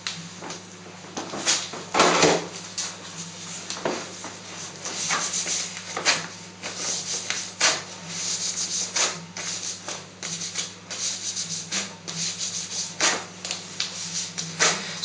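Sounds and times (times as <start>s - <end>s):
wax strip scraping: 5.0s - 15.0s.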